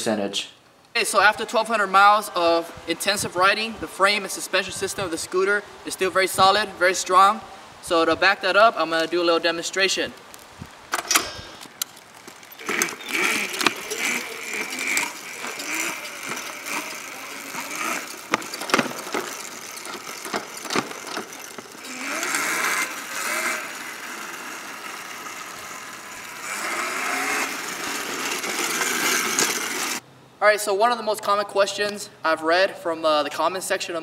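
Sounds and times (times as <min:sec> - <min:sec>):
scooter frame rattling: 0:10.9 - 0:30.0
electric motor whine: 0:12.5 - 0:30.0.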